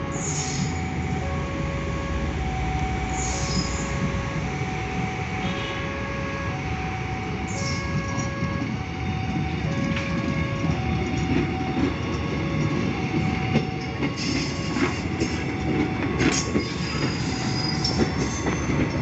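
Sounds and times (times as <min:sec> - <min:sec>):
level crossing alarm: 0:00.0 - 0:19.0
train rolling on track: 0:00.0 - 0:19.0
wheels squealing: 0:16.3 - 0:19.0.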